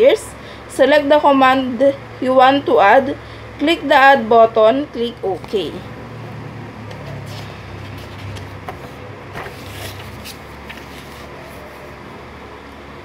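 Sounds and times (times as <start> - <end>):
steady low hum: 0.0 - 13.0
book pages rustling: 6.9 - 12.0.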